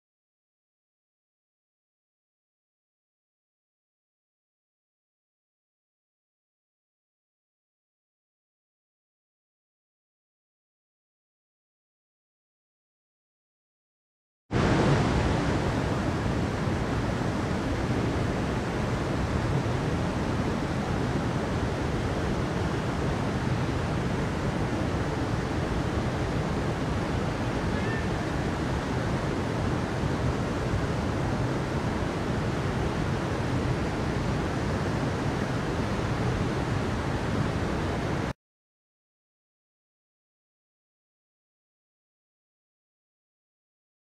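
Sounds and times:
stream flowing over rocks: 14.6s - 38.2s.

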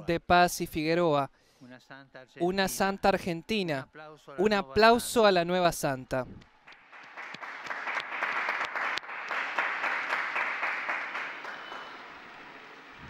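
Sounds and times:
crowd applauding: 6.6s - 13.0s.

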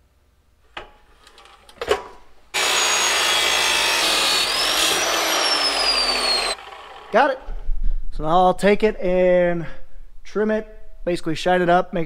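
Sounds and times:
motor whine: 2.6s - 7.2s
chop saw grinding metal: 2.6s - 7.3s.

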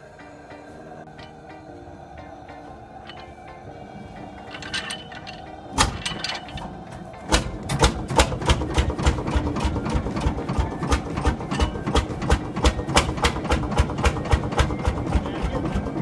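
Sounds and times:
single-cylinder engine knocking: 7.3s - 16.0s.

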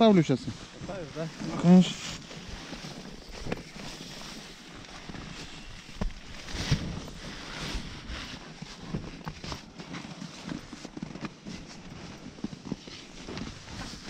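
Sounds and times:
wind noise on microphone: 5.0s - 9.6s.

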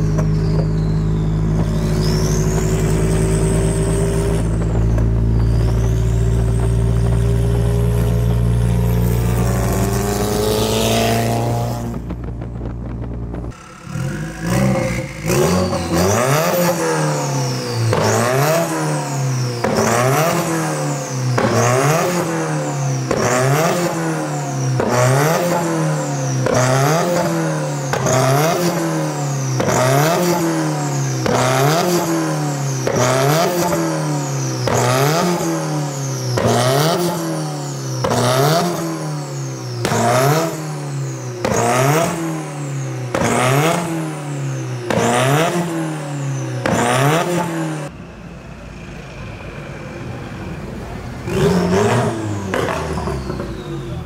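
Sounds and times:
exhaust cracks: 0.0s - 18.7s
car engine revving: 0.0s - 54.0s.

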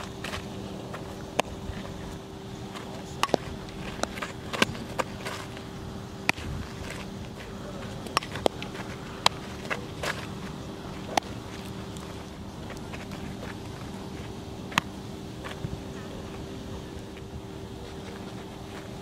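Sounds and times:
steady low hum: 0.0s - 19.0s
ball knocking glove and bat: 2.8s - 5.5s, 7.8s - 12.1s, 14.7s - 15.7s.

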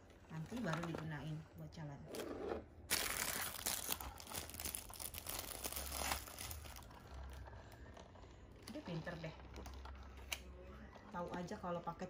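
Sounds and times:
plastic packaging crinkling: 2.9s - 7.8s.

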